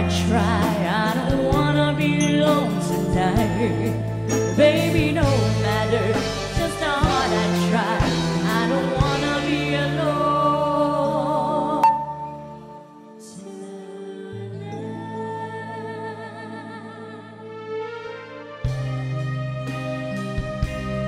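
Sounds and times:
drums: 0.0 - 10.6, 18.6 - 21.0
women singing: 0.0 - 17.5
keyboard: 0.0 - 21.0
bass notes: 11.8 - 13.0.

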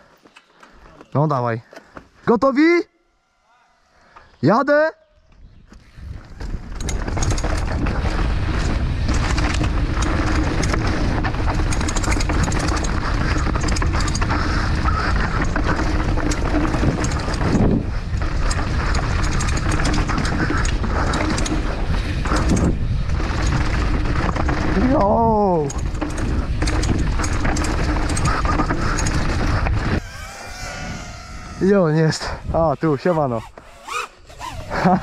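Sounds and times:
bike rattling: 5.4 - 35.0
wind noise on microphone: 5.4 - 35.0
tyres rolling over dirt and stones: 6.2 - 29.9.

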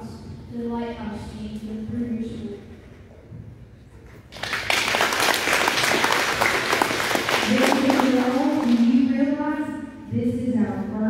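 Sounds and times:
audience clapping: 4.3 - 9.0.

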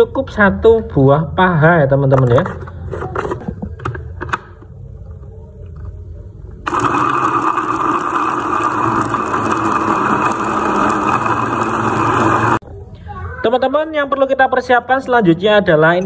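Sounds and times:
food chopper motor running: 6.7 - 12.6.

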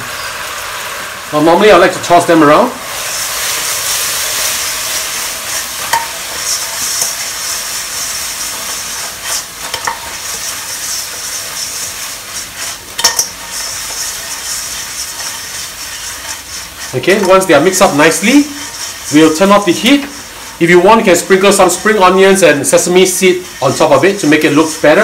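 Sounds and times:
chicken wings sizzling in sauce: 0.0 - 25.0
knocks and scrapes of wok: 3.5 - 20.6.

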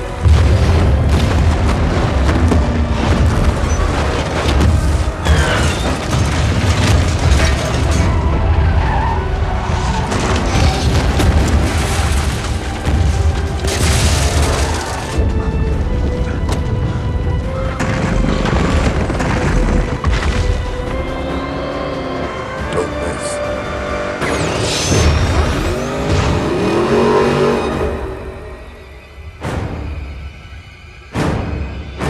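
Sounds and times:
booming impacts: 0.0 - 21.3
film music score: 0.0 - 32.0
tyre skids and squeals: 5.0 - 6.3, 7.4 - 11.3
car engines: 20.8 - 28.9.

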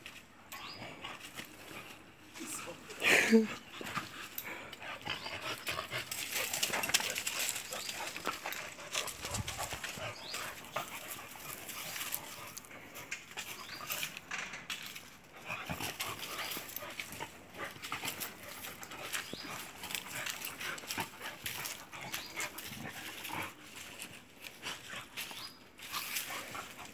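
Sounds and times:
paws scuffling on sand: 5.2 - 12.7, 15.5 - 26.9.

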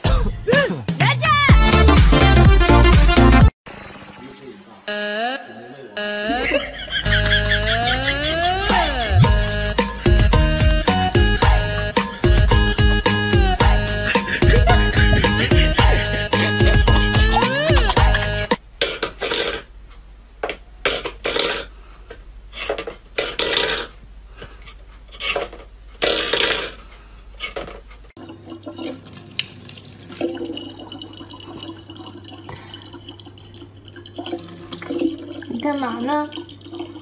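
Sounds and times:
tap water running into bottle: 28.2 - 37.0.

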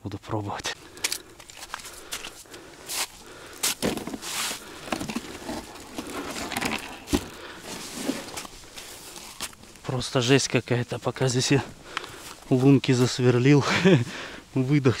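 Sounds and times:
crunching on ice and snow: 0.8 - 9.9.

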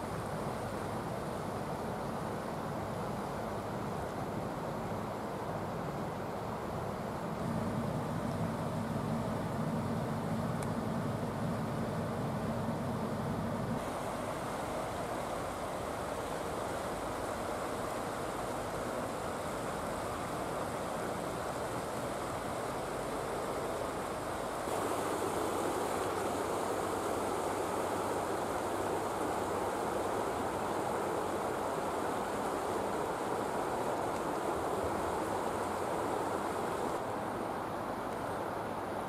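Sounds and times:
river rushing: 13.8 - 39.0.

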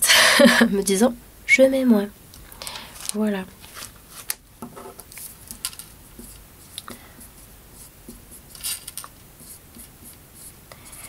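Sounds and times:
marker scratching on paper: 6.0 - 11.0.

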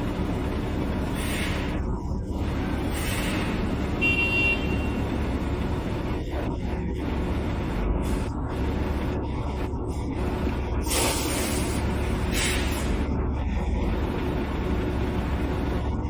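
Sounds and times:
truck diesel engine running: 0.0 - 16.0
vehicle horn toot: 4.0 - 5.0.

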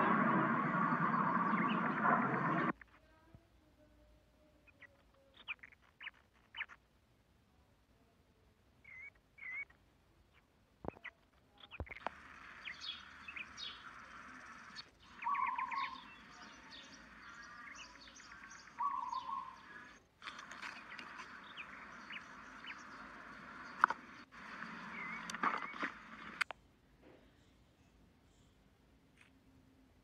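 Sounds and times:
small birds chirping: 0.0 - 3.4, 4.1 - 6.9, 8.8 - 26.5.

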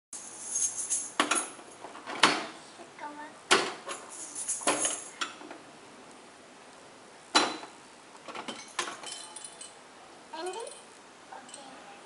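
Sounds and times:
hard objects clinking: 3.9 - 5.2.

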